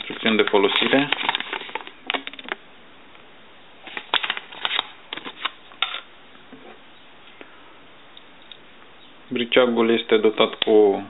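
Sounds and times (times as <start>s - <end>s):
paper leaflet rustling: 0.0s - 2.6s, 3.8s - 5.6s.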